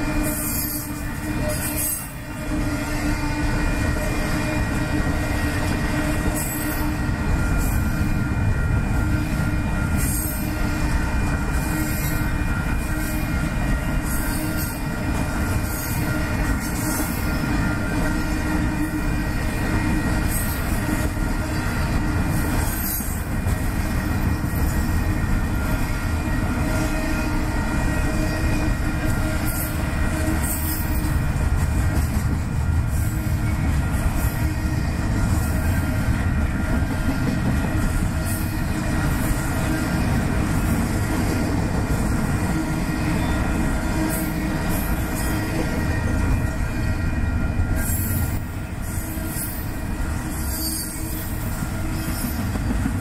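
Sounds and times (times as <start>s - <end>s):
rail clacks: 0.0s - 53.0s
train wheels rumbling on rail: 0.0s - 53.0s
high wheel squeal: 42.5s - 52.5s.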